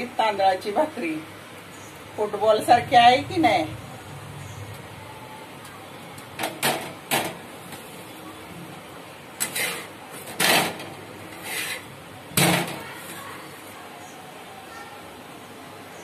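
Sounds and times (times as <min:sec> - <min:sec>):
metal spatula scraping iron griddle: 0:09.4 - 0:13.2.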